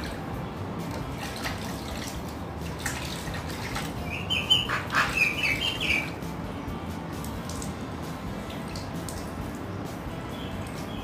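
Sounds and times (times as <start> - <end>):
water splashing: 0.0 - 6.4, 7.1 - 11.0
parrot chirping: 4.0 - 6.2.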